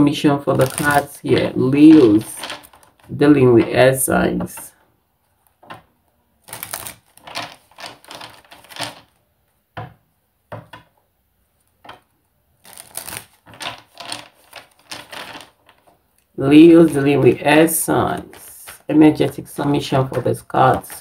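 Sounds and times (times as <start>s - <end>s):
cards shuffled by hand: 0.5s - 3.1s, 6.4s - 9.2s, 12.6s - 15.9s, 16.6s - 21.0s.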